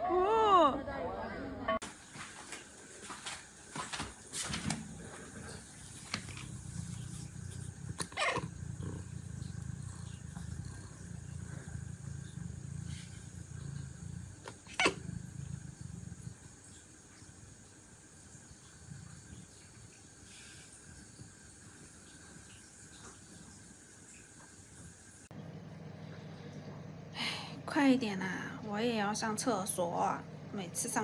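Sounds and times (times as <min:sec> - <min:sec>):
cat purring low rumble: 0:04.5 - 0:17.6, 0:18.4 - 0:22.2.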